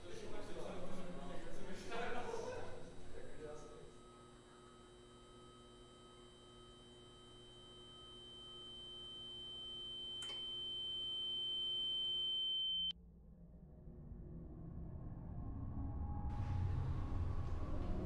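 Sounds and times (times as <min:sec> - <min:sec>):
faint low hum: 0:00.0 - 0:12.9
high-pitched sine tone: 0:03.6 - 0:13.0.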